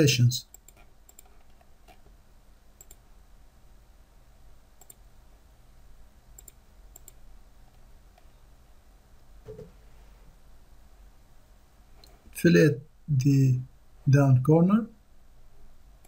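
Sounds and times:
low room hiss: 0.0 - 16.0
computer mouse clicking: 0.5 - 2.1, 2.8 - 3.0, 4.8 - 5.0, 6.4 - 8.3.

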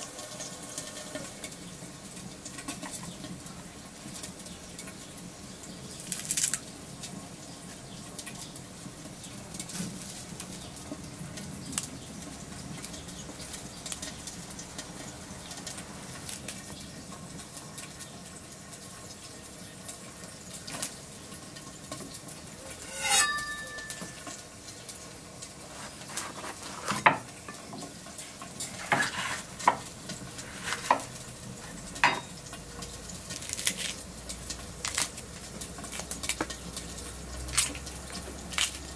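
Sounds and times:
wood fire crackling: 0.0 - 38.9
bell pepper snapping as it is torn: 6.0 - 6.7, 33.3 - 36.6, 37.5 - 38.9
herbs rustling in a stone mortar: 22.6 - 24.3, 28.3 - 32.2.

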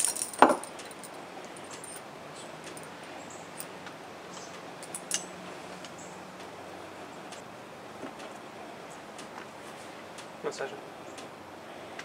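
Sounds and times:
metal leash clips clinking: 0.0 - 2.0, 4.8 - 5.3.

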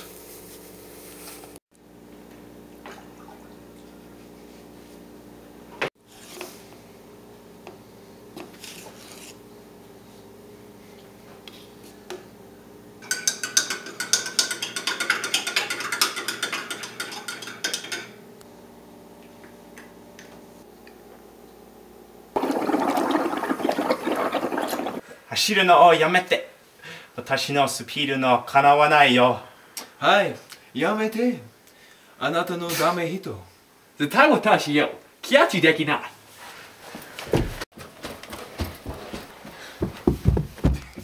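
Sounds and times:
gurgling through a straw: 22.4 - 25.0.

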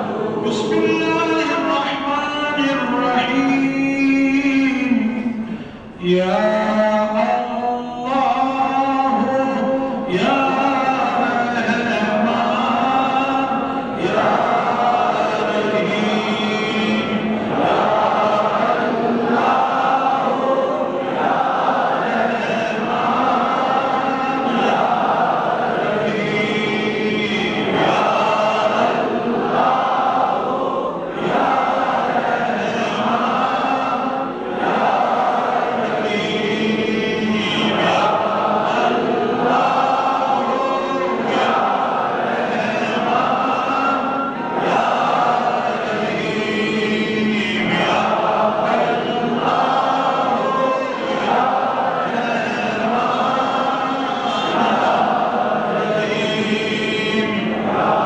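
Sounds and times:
group chanting in unison: 0.0 - 3.6, 5.1 - 58.0.

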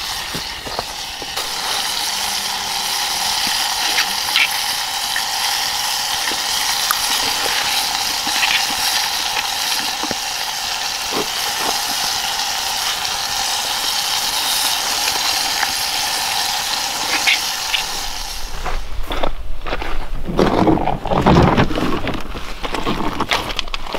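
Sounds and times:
oil sizzling in frying pan: 0.0 - 18.6.

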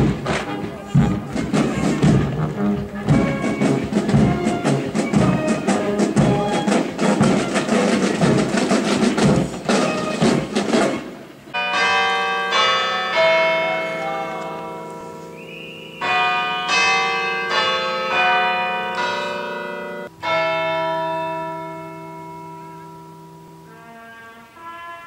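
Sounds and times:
drum beat: 0.0 - 11.2
marching band playing: 0.0 - 11.6
large bell struck: 11.5 - 15.4.

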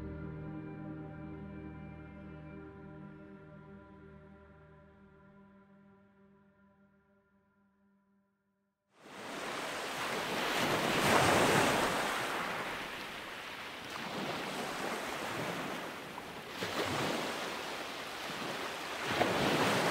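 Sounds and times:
sea water sloshing: 9.1 - 19.9
wind gusting across microphone: 9.1 - 19.9.

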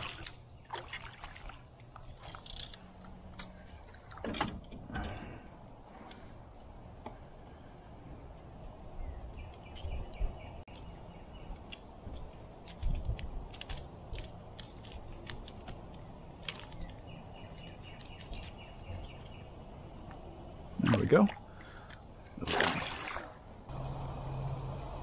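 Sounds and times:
low handling rumble: 23.7 - 25.0.

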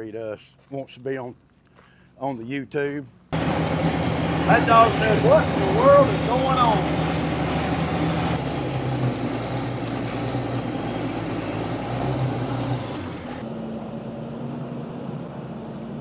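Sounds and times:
vehicle engine running: 3.4 - 16.0.

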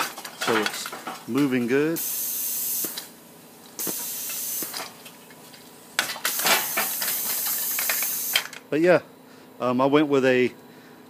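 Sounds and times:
compressed air hissing: 2.0 - 3.2, 3.8 - 4.8, 6.2 - 8.5.

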